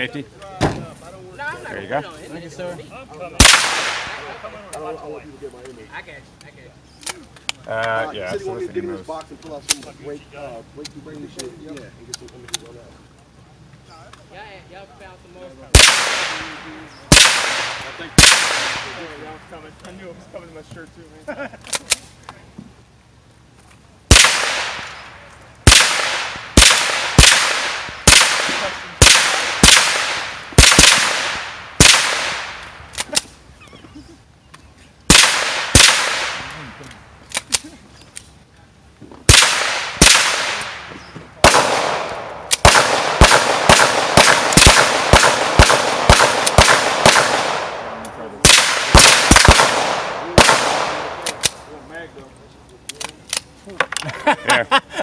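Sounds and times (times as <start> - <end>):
rifle shots echoing: 3.4 - 4.6, 15.7 - 19.5, 24.1 - 33.1, 35.1 - 36.8, 39.3 - 51.8.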